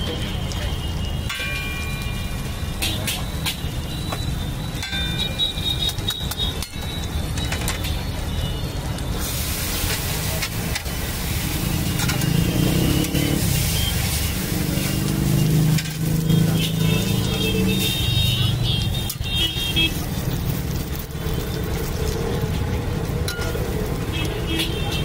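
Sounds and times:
hiss: 9.2 - 15.7.

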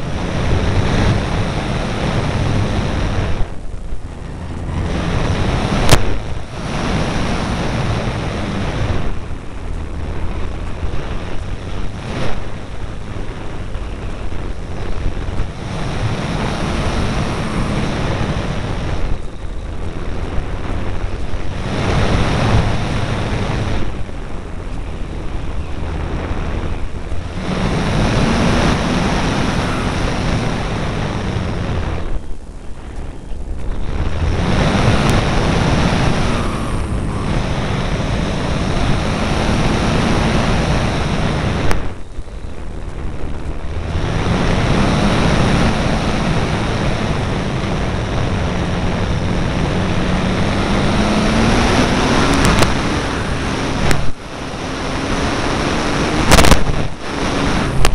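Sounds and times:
model plane motor humming: 0.0 - 32.2
wind rushing over microphone: 0.0 - 57.9.

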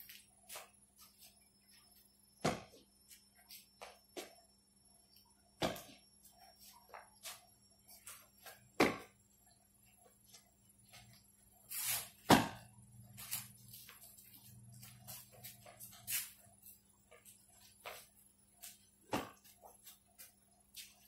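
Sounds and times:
racket hitting shuttlecock: 8.8 - 9.1, 12.2 - 12.7, 19.1 - 19.4.

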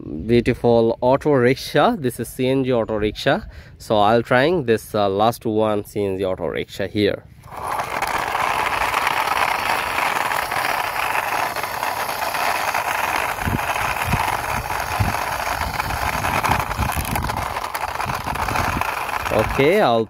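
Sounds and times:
toy wheels rolling on concrete: 7.3 - 20.0.

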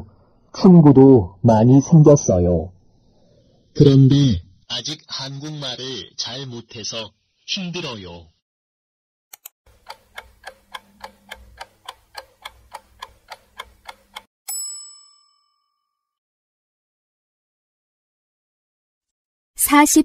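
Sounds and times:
clock ticking: 9.4 - 14.3
bell ding: 14.5 - 16.1.

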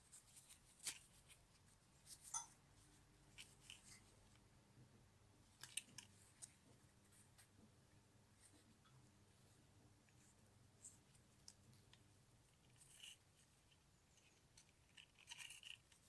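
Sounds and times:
faint clicks and rustles: 0.0 - 7.7, 8.4 - 16.0.

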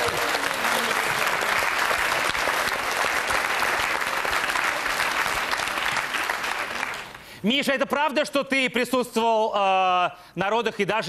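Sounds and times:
audience applauding: 0.0 - 7.3.

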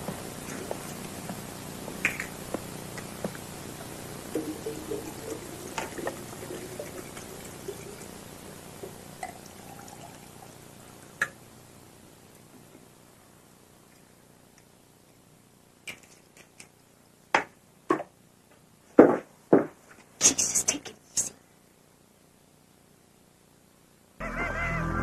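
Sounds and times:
liquid pouring into glass: 8.9 - 10.5.

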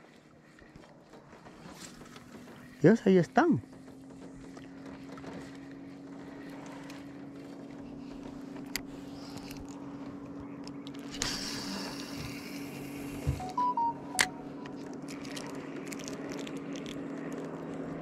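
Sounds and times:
boat motor humming: 0.0 - 18.0
fishing rod and reel rustling: 4.2 - 13.4, 14.5 - 18.0.

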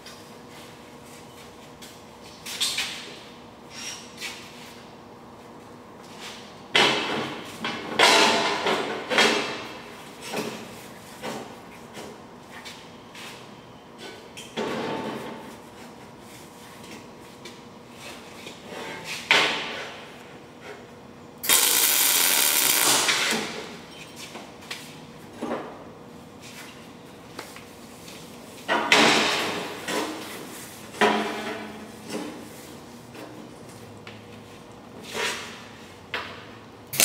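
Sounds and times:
welder crackling and hissing: 21.4 - 23.4.

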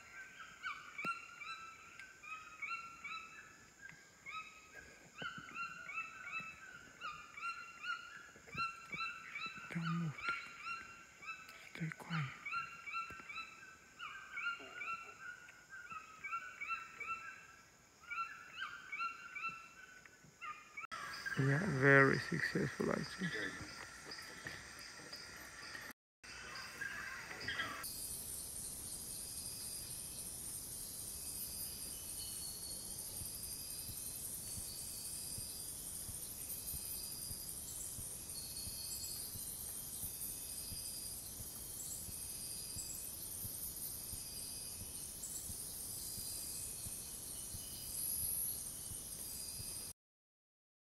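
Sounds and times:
high-pitched insect chorus: 0.0 - 49.9
toucans yelping: 5.2 - 17.4, 26.4 - 27.8.

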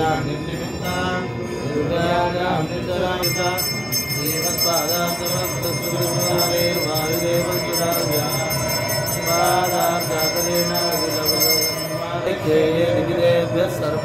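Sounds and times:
men chanting: 0.0 - 14.0
brass hand bell ringing rapidly: 3.2 - 12.1.

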